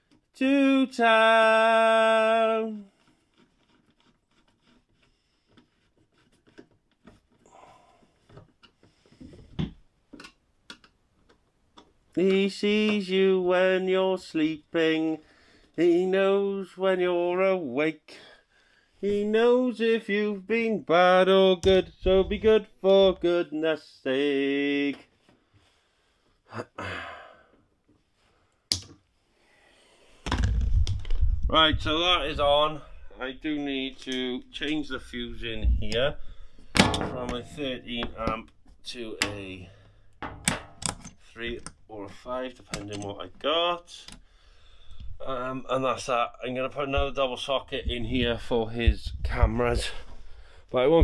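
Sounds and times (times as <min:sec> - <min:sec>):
man sighing: 0:07.5 - 0:08.1, 0:26.5 - 0:27.6
camera handling rumble and knocks: 0:30.3 - 0:32.0.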